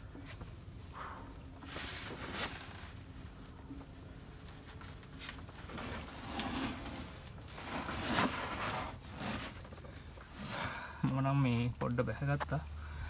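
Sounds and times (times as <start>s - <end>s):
clothing scraping against rock: 1.6s - 3.0s, 4.8s - 10.8s.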